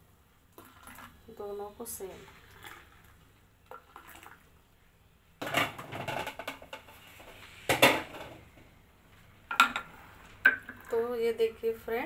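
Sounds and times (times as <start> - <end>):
kitchenware clattering: 5.4 - 7.0, 7.7 - 8.5, 9.5 - 9.9.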